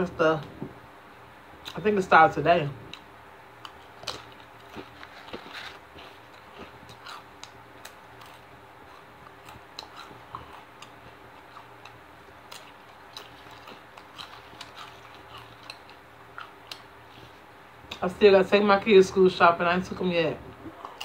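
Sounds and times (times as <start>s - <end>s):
faint steady hum: 0.0s - 21.0s
chips crunching while chewed: 3.0s - 16.9s.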